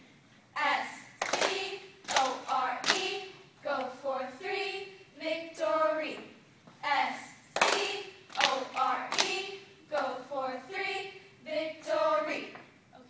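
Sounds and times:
cheerleaders chanting in unison: 0.5 - 13.0
sharp hand claps: 1.2 - 3.2, 7.6 - 9.4.

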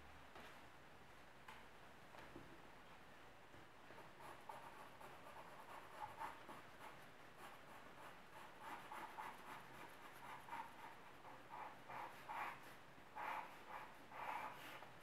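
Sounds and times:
pencil scratching on paper: 4.0 - 14.9.

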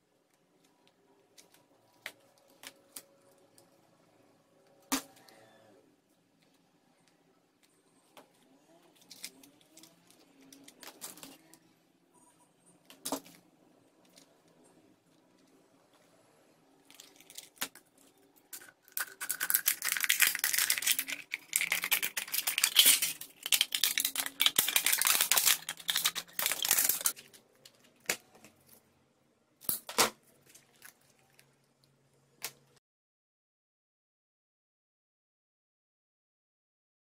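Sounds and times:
scissors cutting metal can: 19.0 - 27.1.

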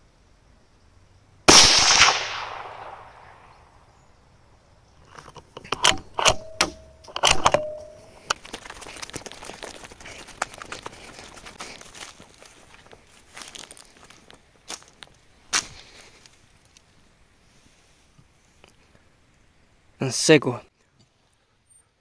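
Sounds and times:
rifle shot: 1.5 - 3.8, 6.2 - 8.0
faint scattered crackling: 4.9 - 19.4
sharp metallic clicks and clacks: 5.2 - 8.8.

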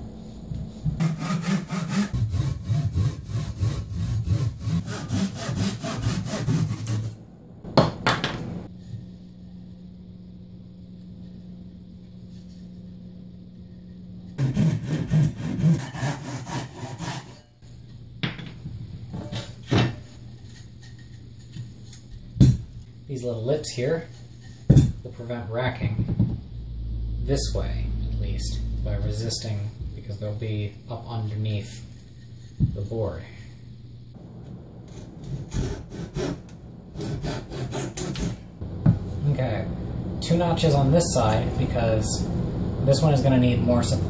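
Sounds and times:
pull saw rasping through wood: 1.0 - 7.1, 14.4 - 17.4.

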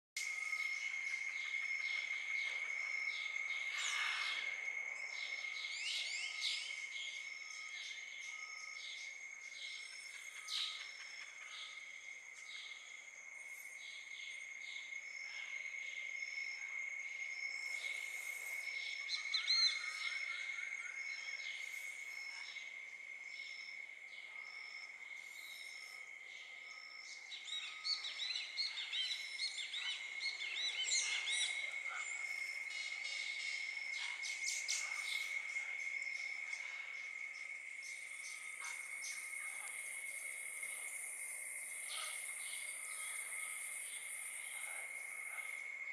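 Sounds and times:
bird calls: 0.2 - 12.9
pulsing insect call: 0.2 - 45.9.

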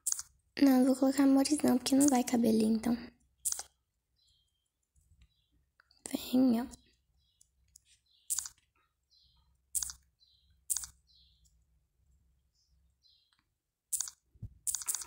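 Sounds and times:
fingers tapping touchscreen: 0.0 - 0.4, 1.9 - 2.3, 3.4 - 4.5, 7.3 - 8.7, 9.7 - 11.6, 13.2 - 15.0.

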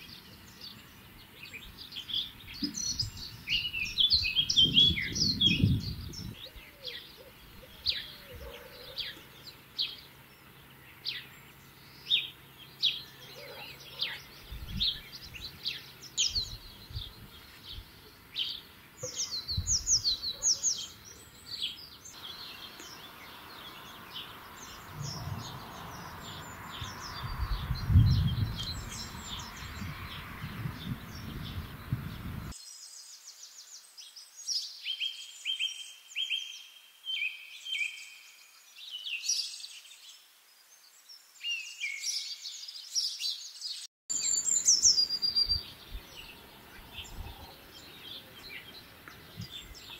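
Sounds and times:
songbirds singing: 0.0 - 49.9
background hiss: 13.8 - 27.1
low rumble: 24.6 - 32.5.

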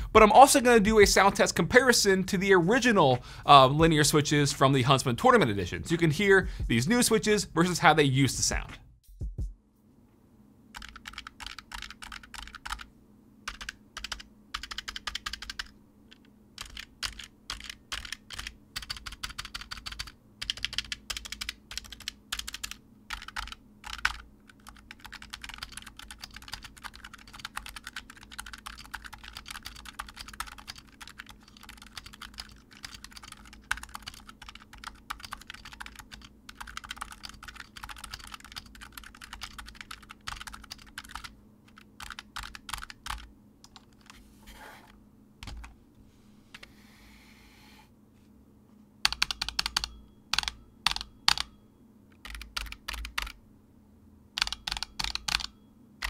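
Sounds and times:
keyboard typing: 10.7 - 12.9, 13.5 - 44.2, 45.4 - 45.8, 49.0 - 53.4, 54.4 - 55.6.

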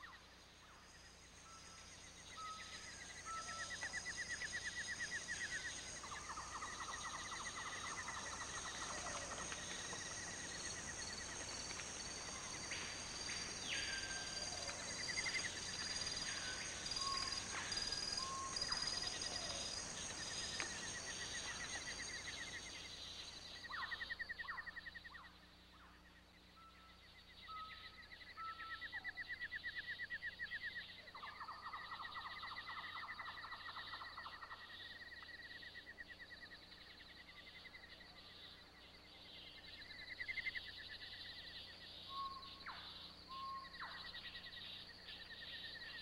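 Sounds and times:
birds calling with trills: 1.5 - 25.4, 39.8 - 46.0.

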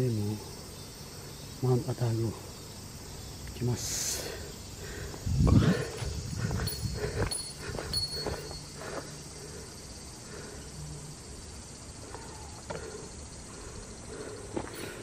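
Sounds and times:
faint steady hiss: 0.0 - 6.4
footsteps on a trail: 4.8 - 9.2, 14.5 - 15.0.

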